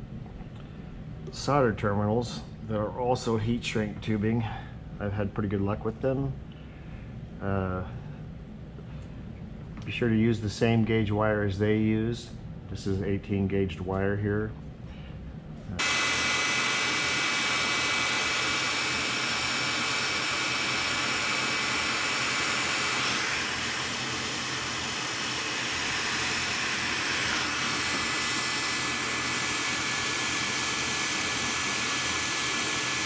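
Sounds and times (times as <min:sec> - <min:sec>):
heat gun blowing hiss: 0:15.8 - 0:33.0.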